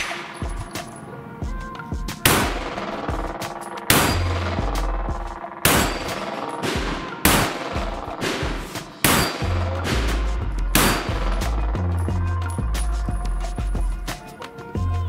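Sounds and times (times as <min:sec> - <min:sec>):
music with heavy bass: 0:01.5 - 0:15.0
pistol shots: 0:02.2 - 0:04.9, 0:05.6 - 0:11.6.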